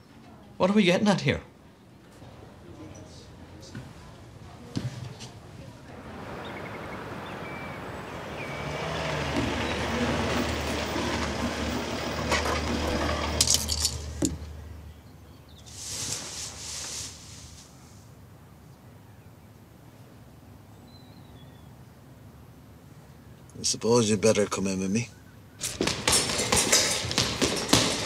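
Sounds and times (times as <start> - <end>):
car engine and tyres: 5.9 - 15.6
short hiss: 15.7 - 18.1.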